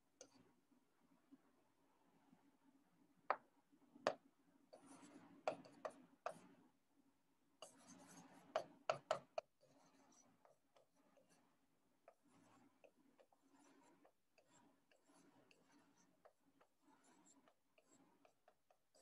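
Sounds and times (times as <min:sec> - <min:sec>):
pen scratching on whiteboard screen: 0:00.2 - 0:00.5, 0:04.1 - 0:06.7, 0:07.6 - 0:19.0
pen tapping on screen: 0:05.5 - 0:06.5, 0:08.5 - 0:09.5.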